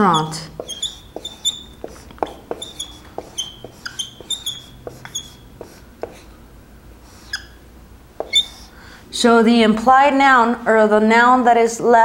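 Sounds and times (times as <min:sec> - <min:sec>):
marker squeaking on whiteboard: 0:00.0 - 0:06.3, 0:07.0 - 0:07.6, 0:08.2 - 0:08.7.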